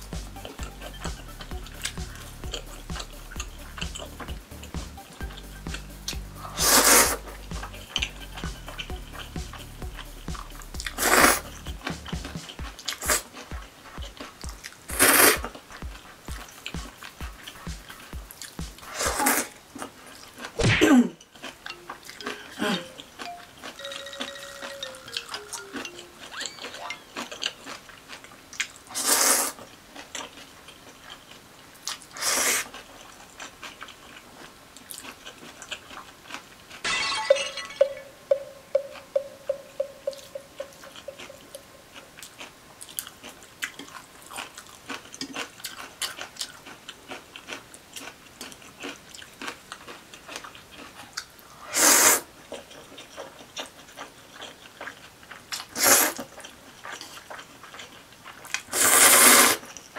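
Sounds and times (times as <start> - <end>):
wet chewing: 0.4 - 20.6, 21.2 - 36.9, 38.3 - 51.4, 52.0 - 59.9
noodles slurping: 6.4 - 9.3, 12.5 - 20.6, 23.6 - 30.5, 50.8 - 54.1, 55.6 - 59.8.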